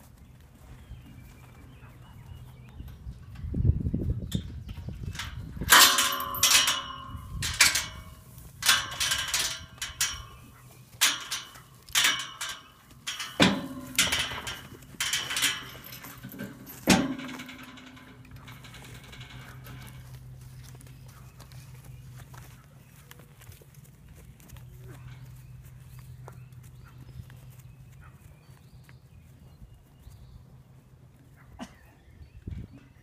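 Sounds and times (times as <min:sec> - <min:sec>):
metal gate clanging and rattling: 0:02.8 - 0:22.6, 0:24.4 - 0:27.5.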